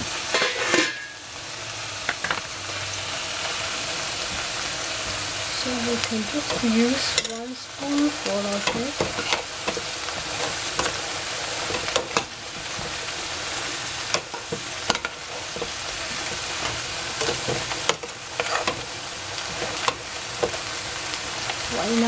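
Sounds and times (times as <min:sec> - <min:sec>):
meat sizzling in a pot: 0:00.0 - 0:22.0
metal spoon scraping a pot: 0:00.3 - 0:01.1, 0:08.6 - 0:12.9, 0:14.1 - 0:18.8.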